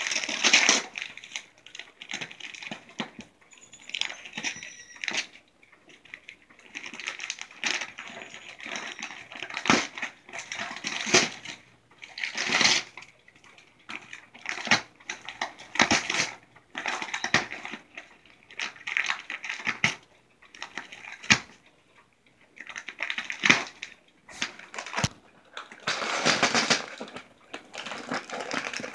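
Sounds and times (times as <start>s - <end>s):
wrapping paper rustling and tearing: 0.0s - 3.2s, 6.6s - 13.1s, 13.9s - 20.0s, 22.7s - 28.9s.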